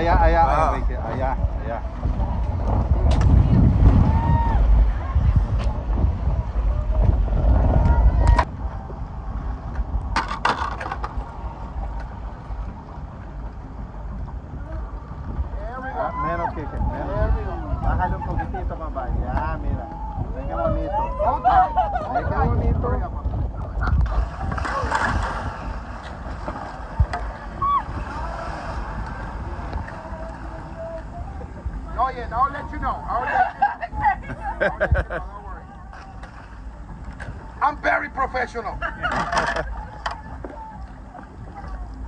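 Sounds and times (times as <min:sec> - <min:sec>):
water and boat noise: 0:00.0 - 0:42.0
wind rumbling on microphone: 0:00.0 - 0:42.0
faint voices: 0:14.4 - 0:42.0.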